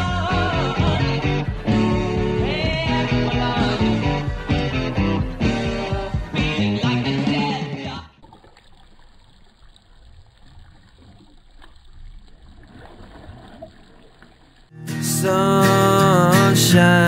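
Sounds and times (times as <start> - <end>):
air bubbles gurgling in water: 8.2 - 14.7
song: 14.7 - 17.0.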